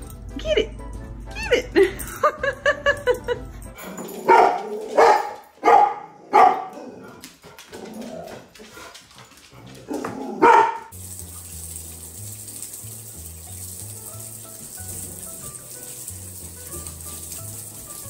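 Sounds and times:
dog barking: 4.3s - 7.1s, 9.9s - 10.9s.

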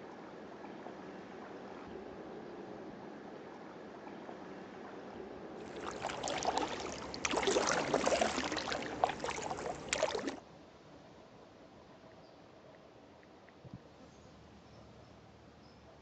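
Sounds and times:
faint steady water sound: 0.2s - 11.9s
kayak paddles splashing water: 5.6s - 10.4s.

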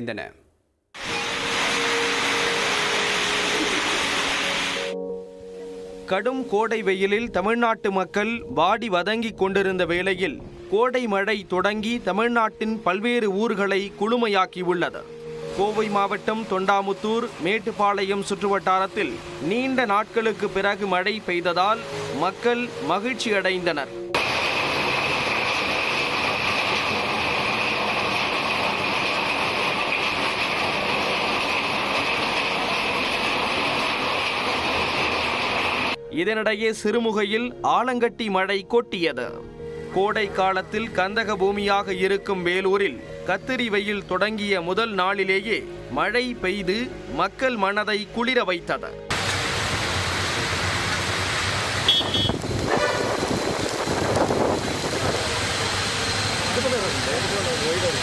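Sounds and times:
heavy rain in strong wind: 1.0s - 5.0s, 20.4s - 22.8s, 24.2s - 36.0s, 49.1s - 58.0s
vehicles driving through water: 49.1s - 58.0s
vehicle horn toot: 51.8s - 53.2s
gusty wind: 51.9s - 56.3s.

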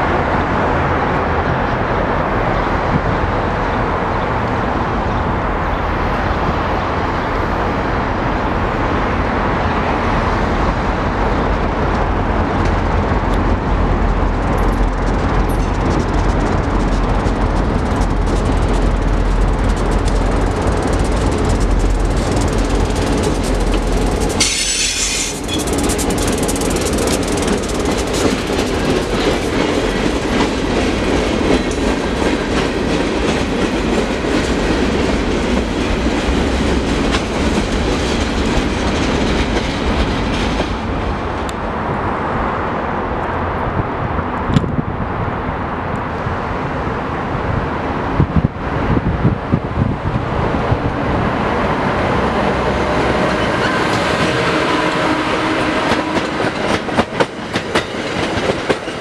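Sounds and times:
diesel locomotive rumbling: 0.0s - 59.0s
wheels clacking over rail joints: 11.7s - 41.6s, 50.8s - 59.0s.

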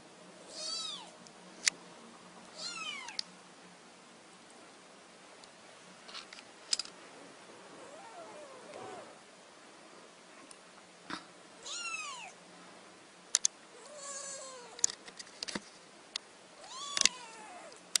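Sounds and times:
sharp clicks: 13.3s - 13.6s.

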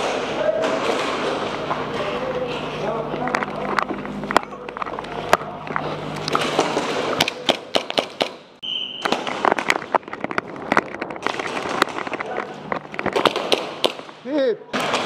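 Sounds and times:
pellets smacking barriers: 0.0s - 15.0s
airsoft guns firing: 6.4s - 9.9s, 13.0s - 15.0s
short high beep: 8.6s - 9.1s.

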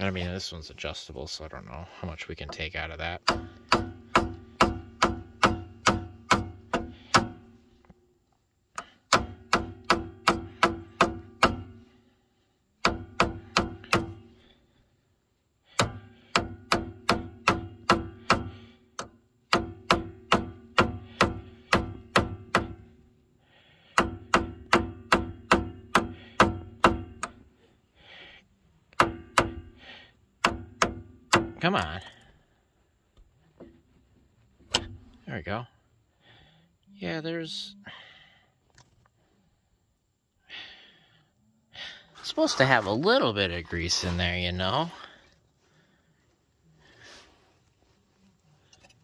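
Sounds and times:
pliers tapping on metal: 8.8s - 11.6s, 15.8s - 18.4s, 24.0s - 27.4s, 28.9s - 29.7s.

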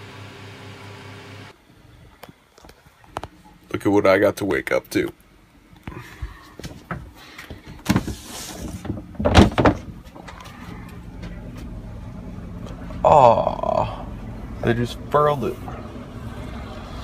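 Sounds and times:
footsteps knocking and thudding: 6.2s - 10.4s.

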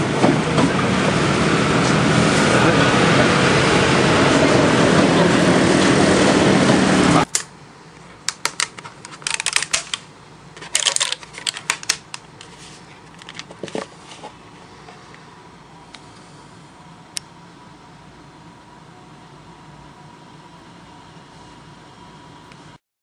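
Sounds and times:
paper crinkling: 8.3s - 10.0s, 10.6s - 14.4s.

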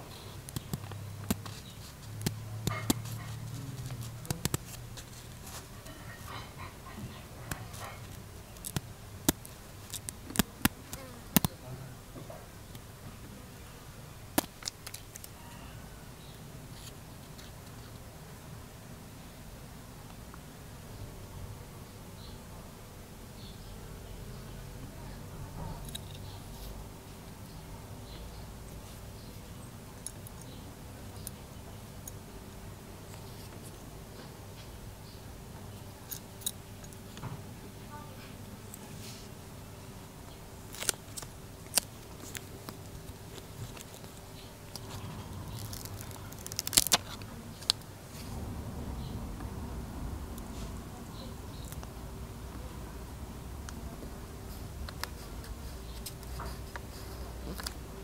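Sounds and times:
faint low hum: 0.0s - 58.0s
scissors snipping paper: 0.3s - 6.4s.

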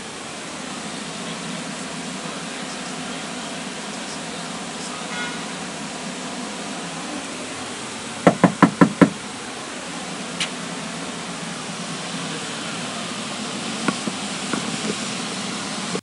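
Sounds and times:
steady hiss: 0.0s - 16.0s
knocking on a door: 8.2s - 9.2s, 13.9s - 15.0s.

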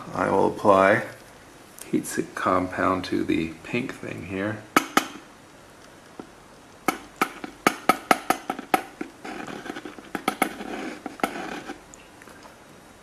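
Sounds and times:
sharp clicking taps: 4.8s - 5.3s, 6.2s - 9.1s
nozzle scraping paste: 6.9s - 11.9s.

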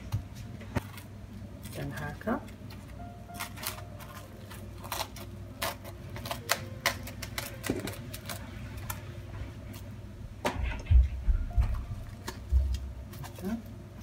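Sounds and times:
plastic cling film crackling: 0.8s - 9.9s.

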